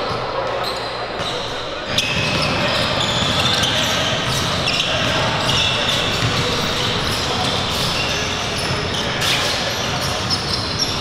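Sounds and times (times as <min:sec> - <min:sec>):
sneaker squeaks: 0:00.0 - 0:11.0
basketballs bouncing on wood floor: 0:02.1 - 0:09.2.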